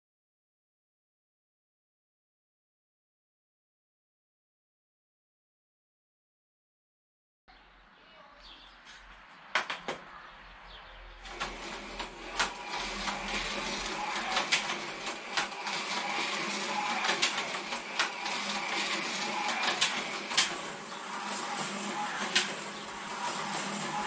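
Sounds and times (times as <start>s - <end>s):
slot car clicking on track: 11.2s - 24.0s
slot car motor whine: 11.2s - 24.0s.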